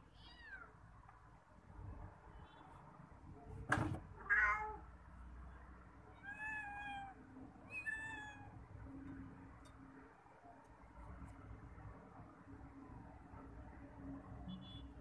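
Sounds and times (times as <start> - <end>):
cat meowing: 4.2 - 4.9, 6.1 - 8.6.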